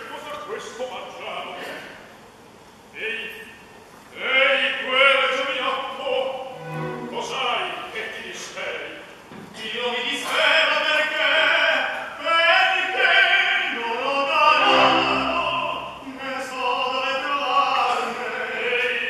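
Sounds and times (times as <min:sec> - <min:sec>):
operatic tenor singing: 0:06.5 - 0:07.6, 0:09.6 - 0:19.0
lower voice part: 0:14.6 - 0:16.3.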